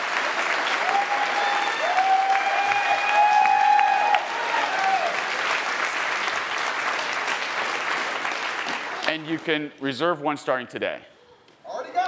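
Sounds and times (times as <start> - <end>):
audience applauding: 0.0 - 9.6
whoops: 0.8 - 5.2.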